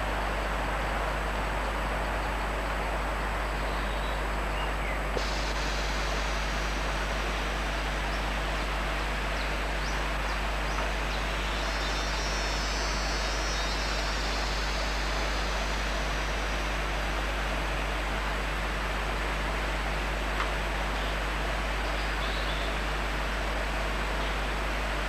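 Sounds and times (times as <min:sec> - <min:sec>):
low hum: 0:05.1 - 0:25.0
steady hiss: 0:05.1 - 0:25.0
thin high buzz: 0:05.2 - 0:17.4.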